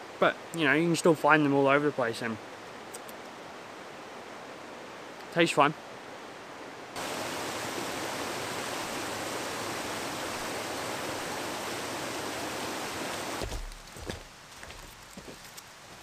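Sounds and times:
river rushing over rocks: 0:06.9 - 0:14.7.

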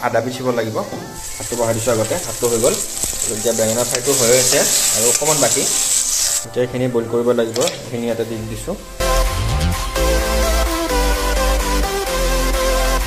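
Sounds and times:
vegetables frying in hot oil: 0:01.2 - 0:06.5.

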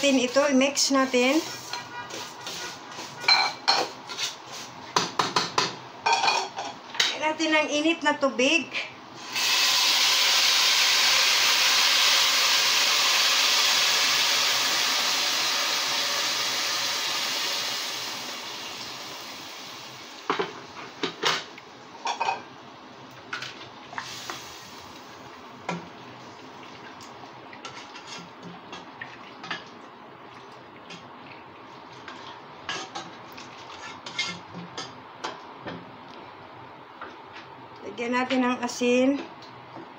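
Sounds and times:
hot water pouring hiss: 0:09.2 - 0:20.4, 0:23.9 - 0:25.2.

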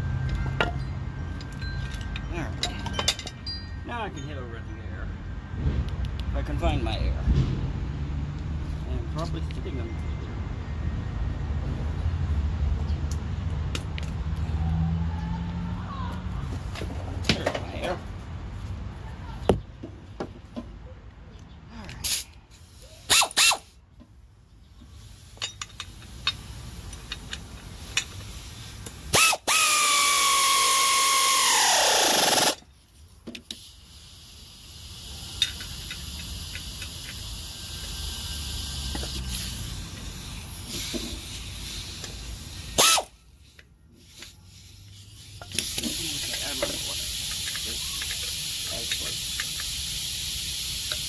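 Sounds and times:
steady air hiss: 0:22.0 - 0:23.8, 0:24.8 - 0:51.0
air ratchet whine: 0:22.1 - 0:23.8, 0:24.8 - 0:32.7, 0:33.3 - 0:51.0.

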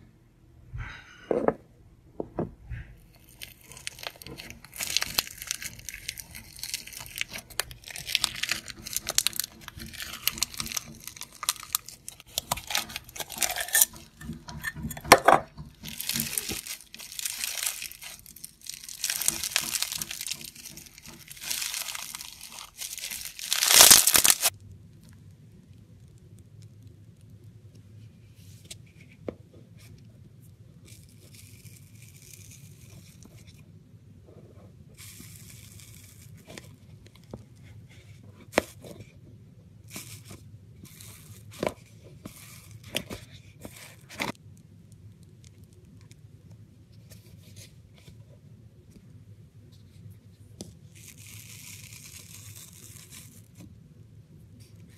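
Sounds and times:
slime crackling when squeezed: 0:03.1 - 0:14.1, 0:15.8 - 0:24.6, 0:50.9 - 0:53.6.

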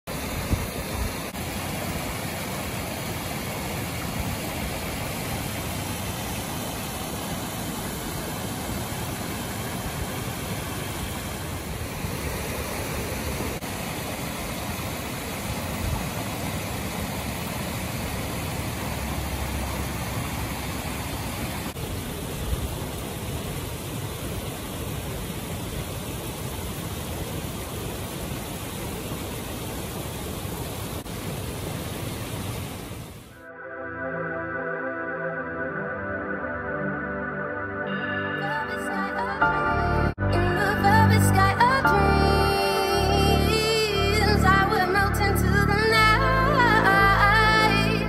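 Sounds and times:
waterfalls pouring into pond: 0:00.1 - 0:33.3.

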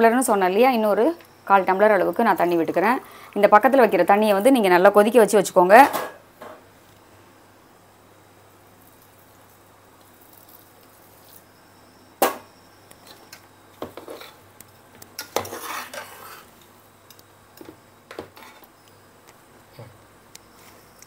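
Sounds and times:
spoon scraping dough in pot: 0:13.8 - 0:14.5, 0:15.1 - 0:16.6.

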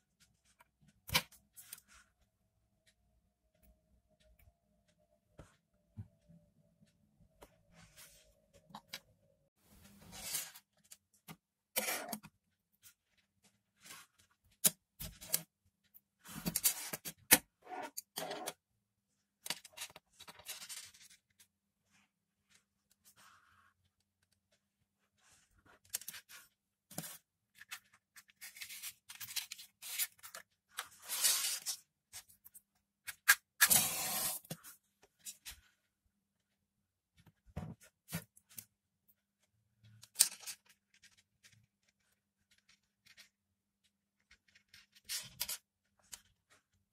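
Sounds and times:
wires scraping and rustling: 0:19.4 - 0:35.9.

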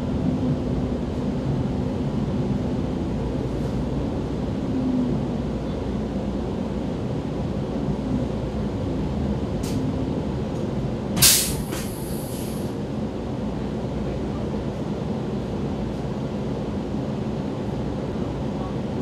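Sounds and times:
train low rumble: 0:00.0 - 0:19.0
brief loud hiss: 0:11.2 - 0:12.7.

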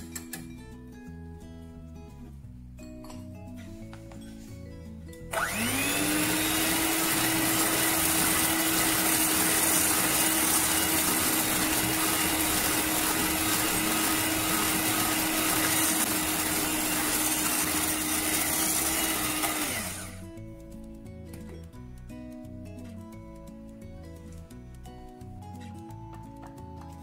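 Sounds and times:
electric hand mixer running: 0:05.3 - 0:20.3.

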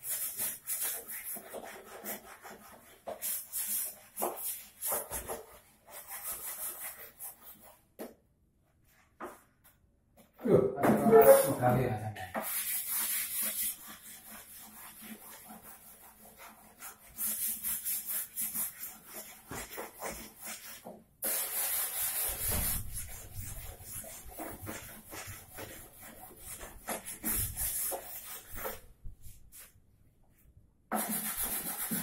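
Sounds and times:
sandpaper rubbing on wood: 0:12.4 - 0:28.8, 0:30.9 - 0:32.0.

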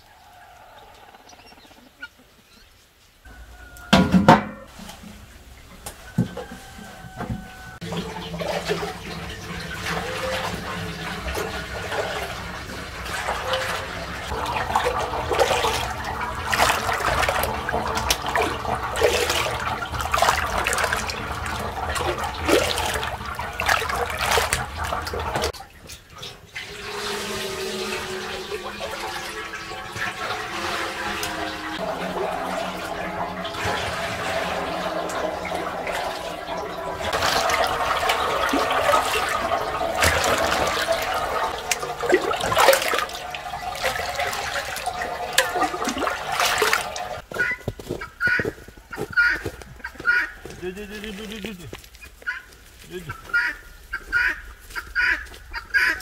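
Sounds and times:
liquid splashing into a pot: 0:06.0 - 0:47.2.

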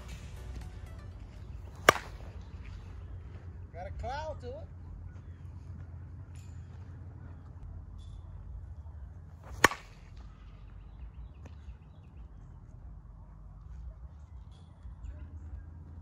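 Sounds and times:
bat cracking a ball: 0:01.6 - 0:02.4, 0:09.4 - 0:10.2.

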